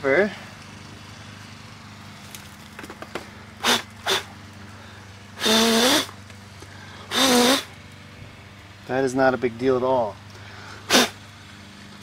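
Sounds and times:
person blowing breath: 0:10.4 - 0:11.2.

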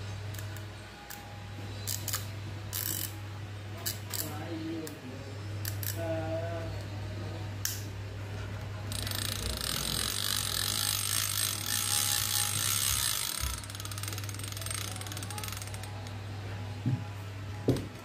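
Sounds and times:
fishing reel cranking clicks: 0:01.9 - 0:03.2, 0:03.8 - 0:04.4, 0:05.6 - 0:06.1, 0:08.9 - 0:16.2.

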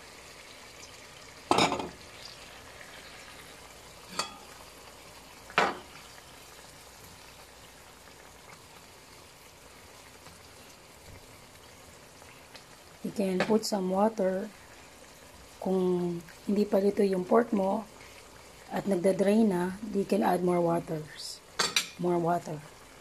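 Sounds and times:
broth bubbling in a pan: 0:00.0 - 0:23.0.

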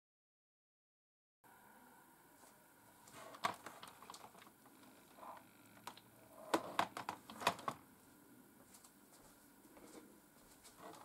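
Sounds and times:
plastic keyboard clicks and knocks: 0:03.2 - 0:04.5, 0:05.8 - 0:07.8.

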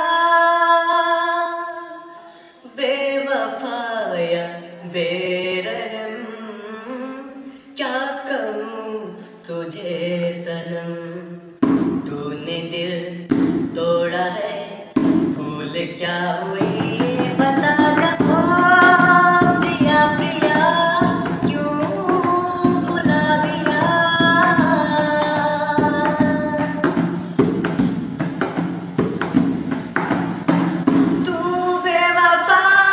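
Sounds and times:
man singing: 0:00.0 - 0:27.8, 0:31.2 - 0:32.9
drums: 0:11.6 - 0:32.9.

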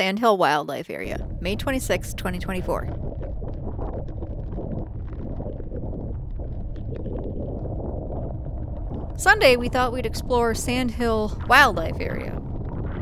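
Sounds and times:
vehicle low rumble: 0:01.0 - 0:13.0.

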